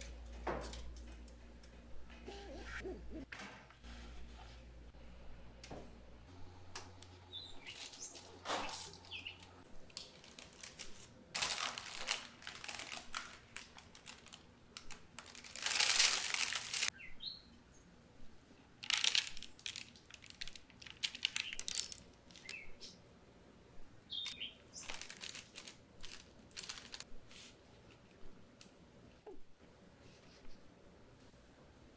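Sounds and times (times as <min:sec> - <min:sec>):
parchment paper rustling: 0:07.6 - 0:16.9, 0:18.8 - 0:22.6, 0:24.2 - 0:28.0.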